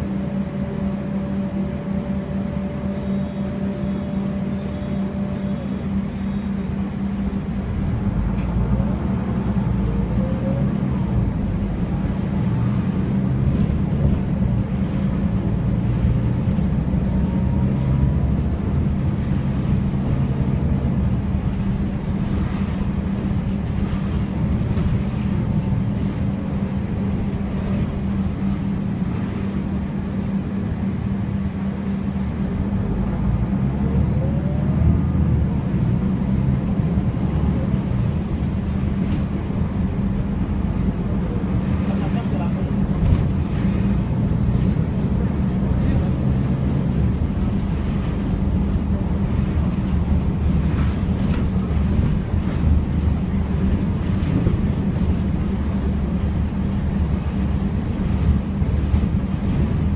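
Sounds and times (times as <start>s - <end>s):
faint high whine: 0.0s - 7.6s
bus engine and road noise: 0.0s - 59.9s.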